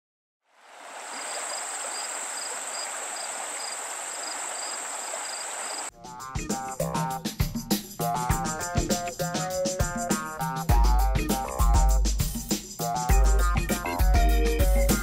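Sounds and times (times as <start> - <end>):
insects chirping: 0.7 - 5.9
music: 5.9 - 15.0.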